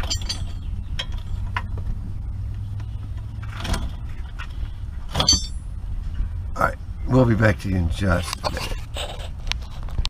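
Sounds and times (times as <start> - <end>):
hand tool clinking on metal: 0.0 - 1.4, 5.1 - 5.6
steady low rumble: 0.0 - 10.0.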